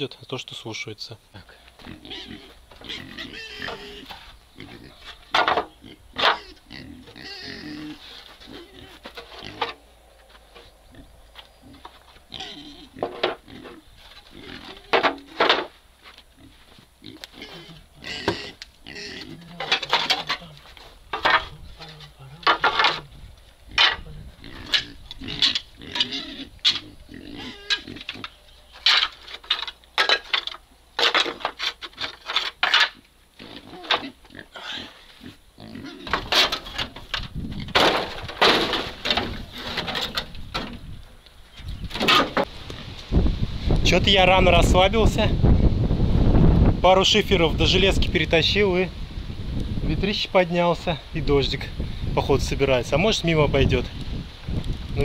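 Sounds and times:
farm animal calling: 1.4s - 15.6s, 16.3s - 29.2s
roofing sheets clattering: 19.6s - 23.1s, 36.1s - 40.8s.

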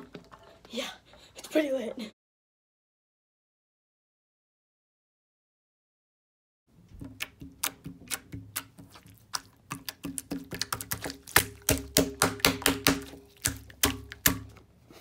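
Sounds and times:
hand squishing slime: 7.0s - 14.7s.

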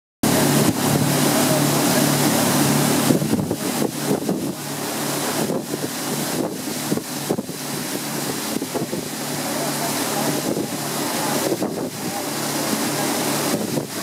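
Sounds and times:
motorboat engine: 0.2s - 14.0s
water splashing along hull: 0.2s - 14.0s.

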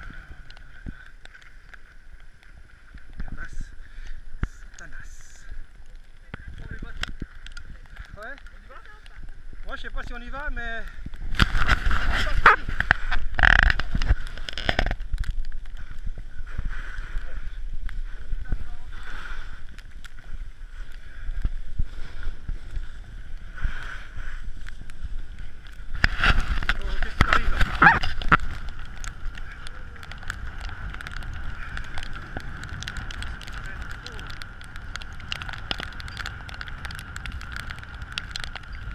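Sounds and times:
wind rumble on microphone: 0.0s - 38.9s
skis scraping snow: 11.3s - 14.8s, 16.4s - 21.0s, 21.8s - 34.3s.

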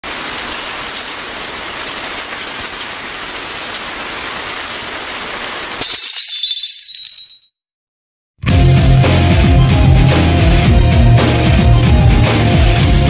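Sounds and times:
steady rain hiss: 0.0s - 5.8s.

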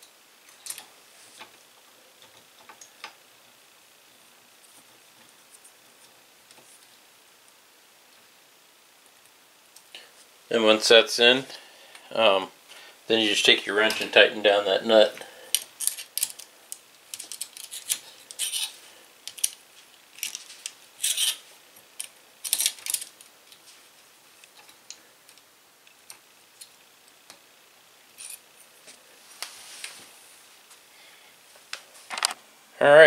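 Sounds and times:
wrench clicking and scraping metal: 15.5s - 16.5s, 17.1s - 19.6s, 21.0s - 21.4s, 22.0s - 23.2s.

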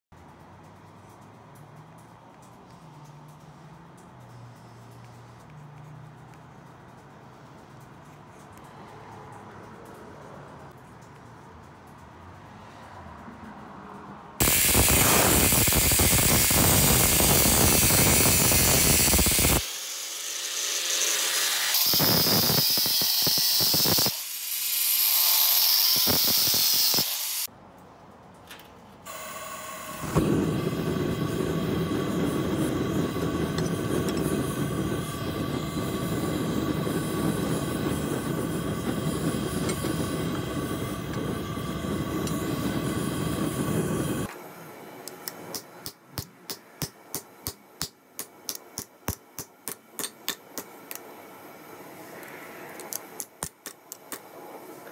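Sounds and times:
gas forge burner running: 14.4s - 19.6s, 29.1s - 46.0s, 46.8s - 54.9s
angle grinder cutting steel: 14.4s - 27.5s, 29.6s - 44.3s.

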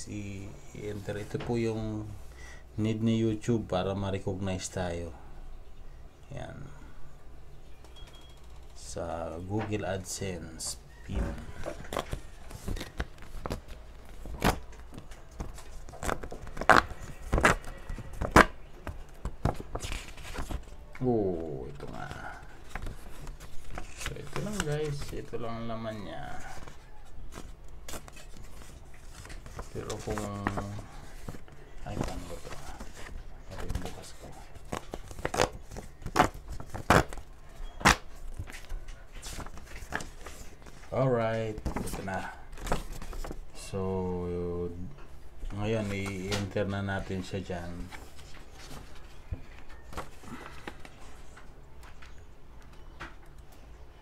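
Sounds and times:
paper ripping and crinkling: 21.8s - 25.4s, 26.4s - 37.2s.

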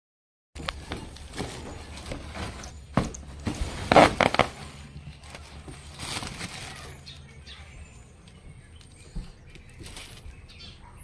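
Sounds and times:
plastic packaging rustling: 0.6s - 7.3s, 9.6s - 10.6s.

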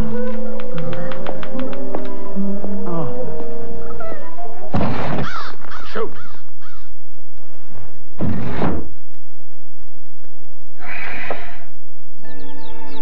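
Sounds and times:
harsh cawing calls: 5.2s - 6.9s
heavy thump: 8.2s - 9.0s.

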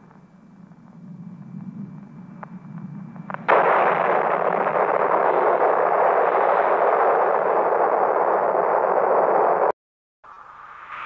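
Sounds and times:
faint low rumble: 0.0s - 9.7s
loud blast: 3.3s - 9.7s.

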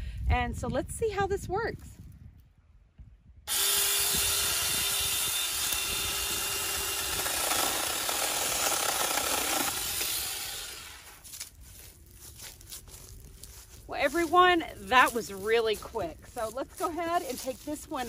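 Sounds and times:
electric chainsaw whining: 3.5s - 11.2s
chainsaw sawing through branch: 3.5s - 11.3s.

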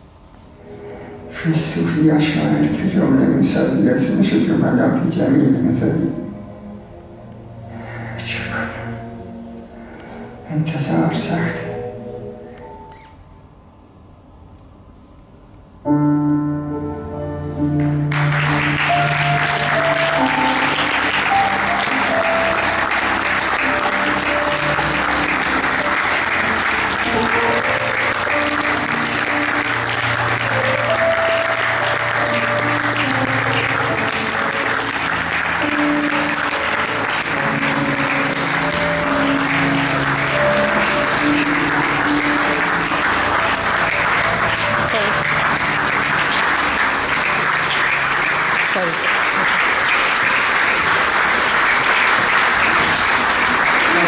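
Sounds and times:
piano music: 0.0s - 54.0s
audience applauding: 17.8s - 54.0s.

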